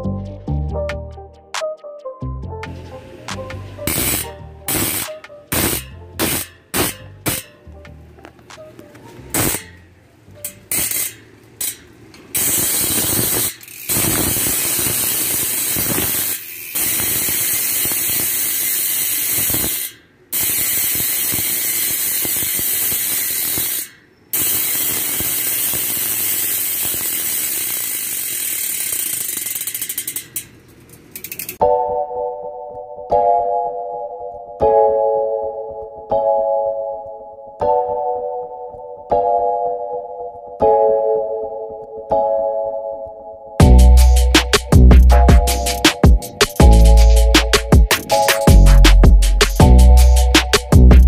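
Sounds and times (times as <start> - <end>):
bicycle hub ratchet buzz: 3.9 - 7.5, 9.3 - 9.8, 10.4 - 31.6.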